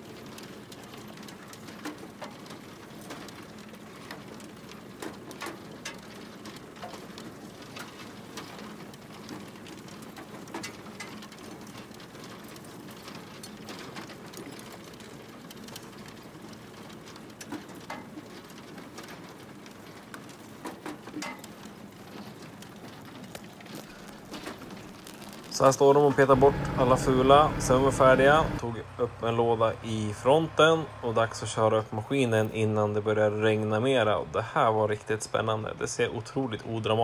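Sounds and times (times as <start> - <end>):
potatoes clattering on metal rods: 0.0 - 28.6
low machine hum: 26.0 - 28.6.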